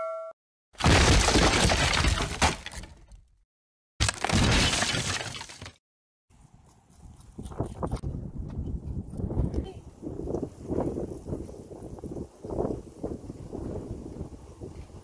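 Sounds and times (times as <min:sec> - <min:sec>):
loud crashing and shattering: 0:00.8 - 0:03.1, 0:04.0 - 0:05.8.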